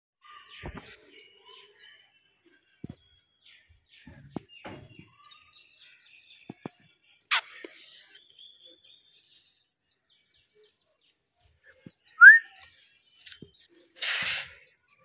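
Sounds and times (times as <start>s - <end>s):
loud harsh bird burst: 14.0s - 14.7s.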